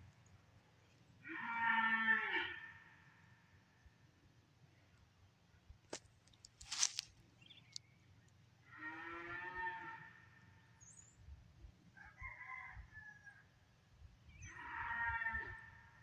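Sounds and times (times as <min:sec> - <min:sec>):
farm animal calling: 0:14.3 - 0:15.8.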